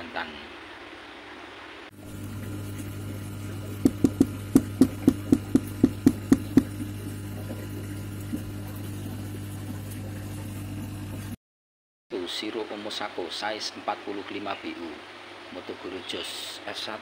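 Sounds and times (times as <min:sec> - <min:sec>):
low electric hum: 0:01.9 - 0:11.4
rapid sharp knocks: 0:03.8 - 0:06.7.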